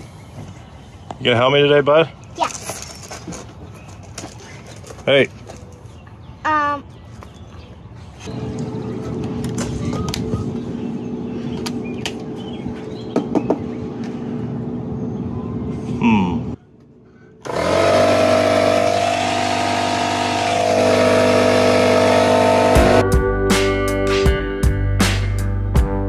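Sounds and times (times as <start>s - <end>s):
air compressor motor humming: 17.4s - 23.0s
background guitar music: 22.4s - 26.0s.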